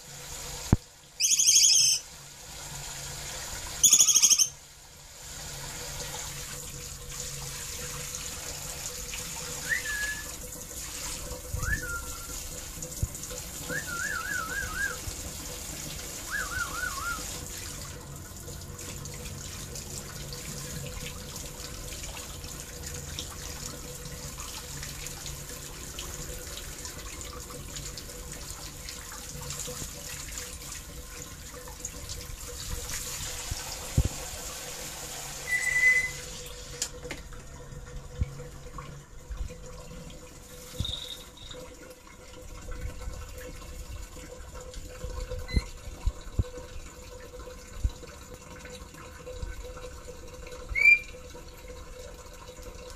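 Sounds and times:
bird warbling whistles: 1.2 - 2.0, 3.8 - 4.6, 9.6 - 10.3, 11.6 - 12.4, 13.7 - 15.0, 16.3 - 17.3, 35.4 - 36.3, 40.8 - 41.6, 50.7 - 51.2
hiss of water spray: 32.6 - 36.9.

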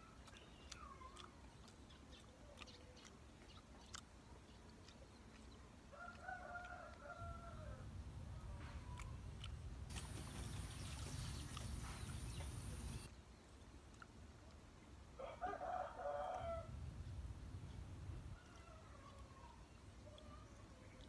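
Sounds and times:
rooster crowing: 6.0 - 7.8, 15.2 - 16.7.

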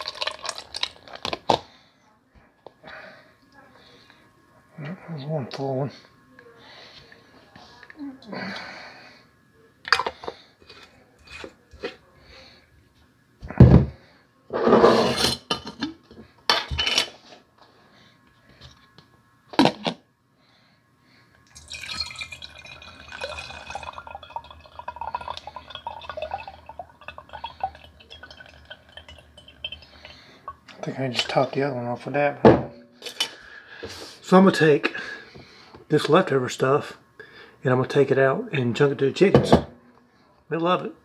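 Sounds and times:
liquid trickling into jar: 0.0 - 1.4, 21.5 - 30.9.

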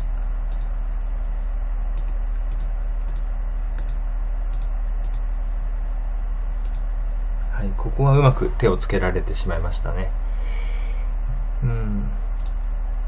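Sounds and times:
computer mouse clicking: 0.0 - 0.8, 2.0 - 5.2, 6.6 - 6.9, 12.4 - 12.6
steady low hum: 0.0 - 13.0.

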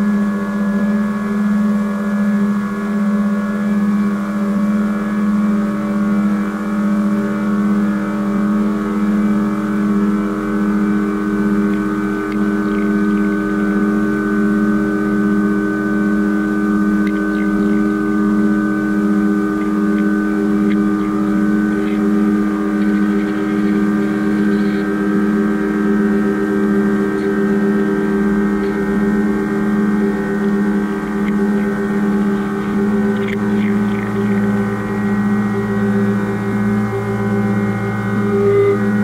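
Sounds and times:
deeper drone tone: 0.0 - 39.0
layered drone tones pulsing: 0.0 - 39.0
faint ticks: 17.0 - 17.2.

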